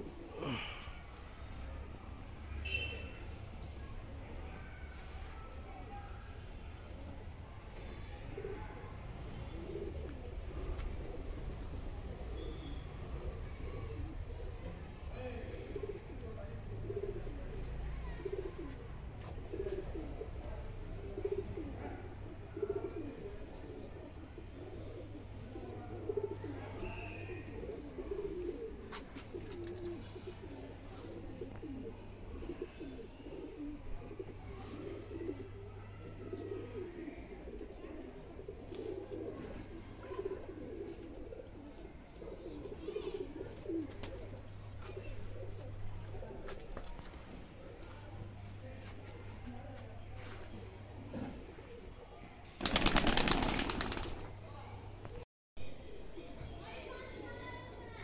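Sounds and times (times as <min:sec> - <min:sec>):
pigeons cooing: 0:00.0 - 0:01.3, 0:08.3 - 0:48.4, 0:52.6 - 0:54.2.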